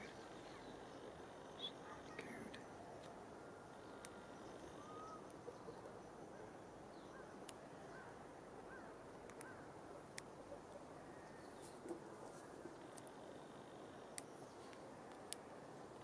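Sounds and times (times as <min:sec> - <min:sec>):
faint bird chirps: 0:00.0 - 0:14.9
faint outdoor background: 0:00.0 - 0:16.0
small sharp clicks: 0:09.2 - 0:09.5, 0:12.8 - 0:13.2.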